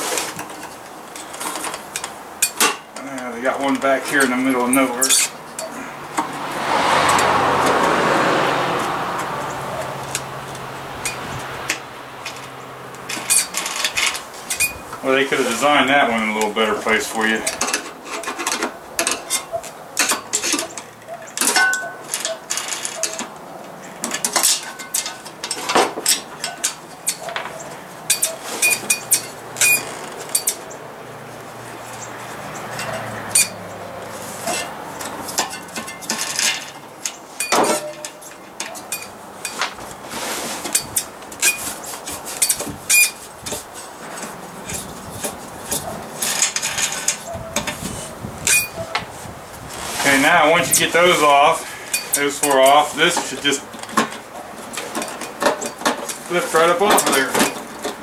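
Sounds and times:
metal clinks and taps: 34.5s - 39.8s.

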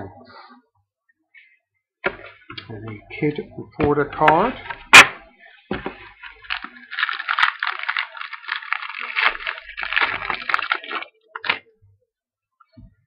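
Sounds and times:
wrapper tearing and crinkling: 6.0s - 11.6s.

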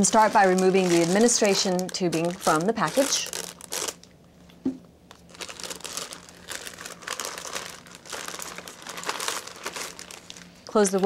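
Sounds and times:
plastic packaging crinkling: 0.0s - 4.2s, 5.0s - 11.0s.

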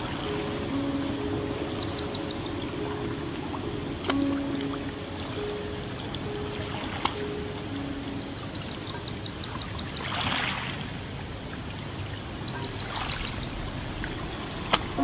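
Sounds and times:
soft steady hiss: 0.0s - 15.0s
bird chirps: 0.2s - 4.6s, 7.2s - 10.3s, 12.4s - 15.0s.

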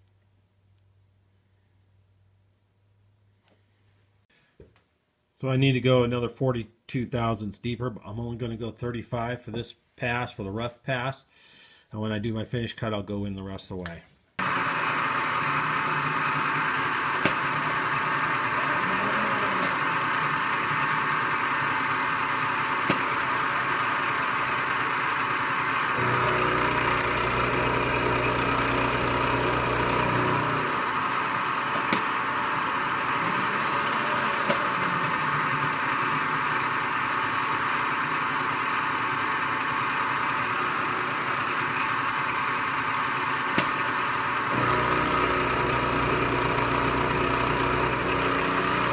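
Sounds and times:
deep hum: 14.4s - 48.9s
milling machine cutting steel: 14.4s - 48.9s.

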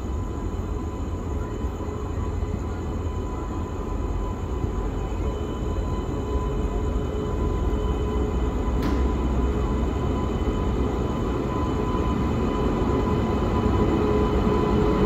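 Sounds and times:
steady multi-tone hum: 0.0s - 15.0s
train rumble: 0.0s - 15.0s
faint click: 8.8s - 9.1s.

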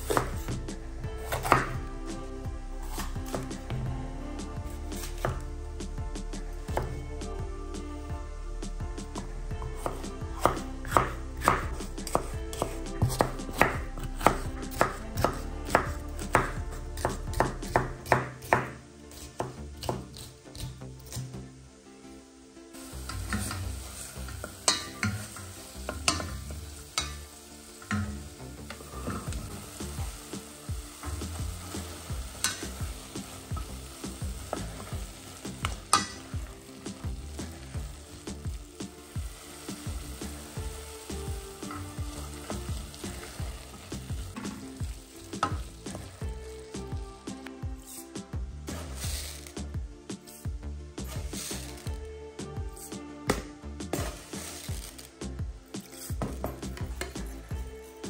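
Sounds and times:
vegetables sizzling in oil: 0.0s - 2.2s, 2.8s - 3.8s, 9.0s - 21.8s, 22.4s - 49.7s, 51.0s - 52.0s, 53.9s - 58.0s
knife chopping on wooden board: 10.4s - 18.8s
spoon clacking on pot: 24.4s - 26.4s, 27.0s - 28.1s, 35.9s - 36.3s.

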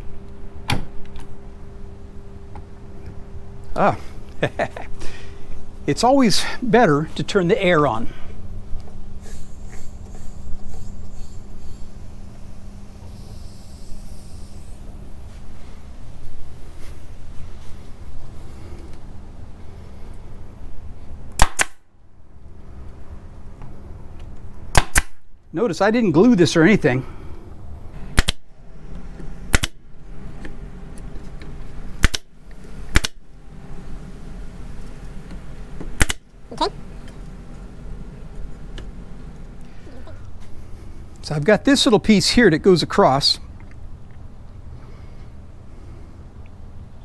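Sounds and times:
air compressor motor humming: 0.0s - 20.9s
high air hiss: 3.8s - 20.6s
nail gun firing into wood: 21.4s - 21.8s, 24.7s - 25.2s, 28.2s - 28.4s, 29.5s - 29.8s, 32.0s - 32.3s, 32.9s - 33.2s, 36.0s - 36.2s.

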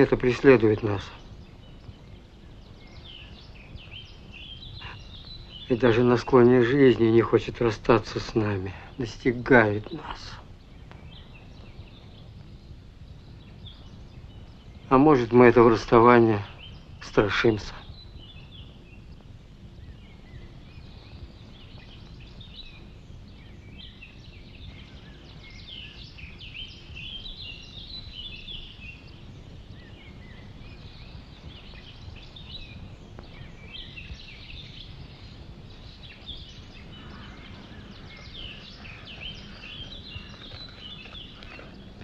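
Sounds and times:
birds chirping and singing: 0.0s - 42.0s
low background rumble: 17.7s - 42.0s.

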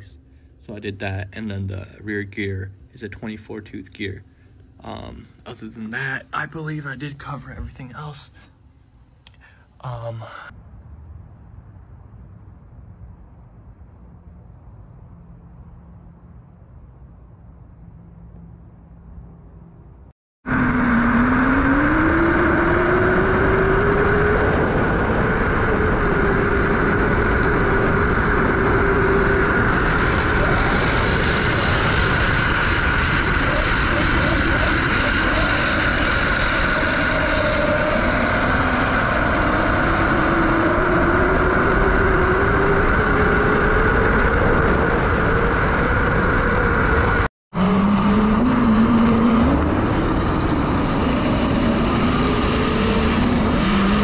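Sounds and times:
wind and road noise: 10.5s - 54.0s
electric motor whining: 20.5s - 54.0s.

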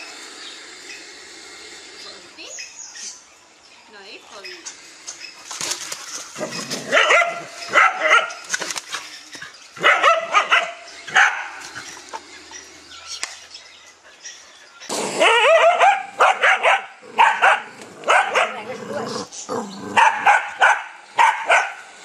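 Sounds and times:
dogs barking: 6.4s - 8.4s, 9.8s - 12.0s, 15.1s - 19.1s, 19.9s - 21.8s.

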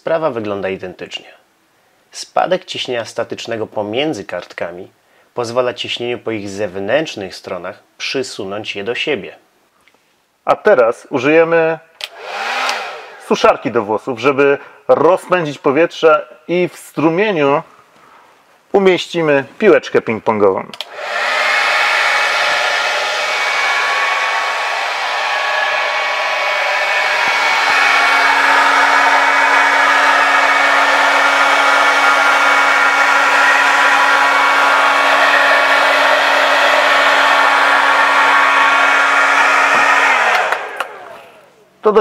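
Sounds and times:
hair dryer running: 12.0s - 13.3s, 20.8s - 41.5s.

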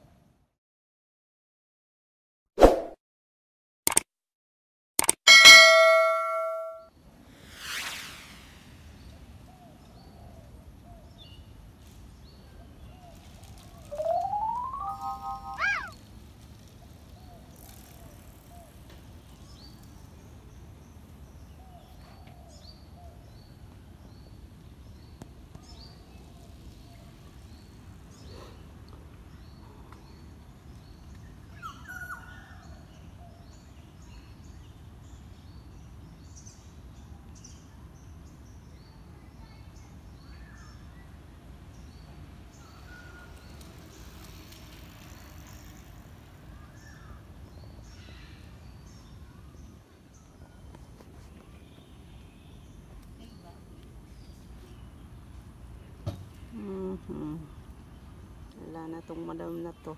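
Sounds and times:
faint high bird chirps: 5.3s - 6.8s, 13.9s - 16.0s.

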